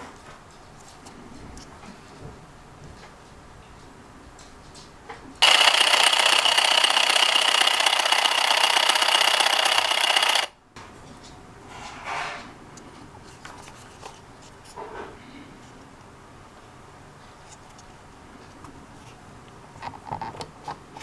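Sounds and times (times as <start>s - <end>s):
motor and gears whirring: 5.4s - 10.6s.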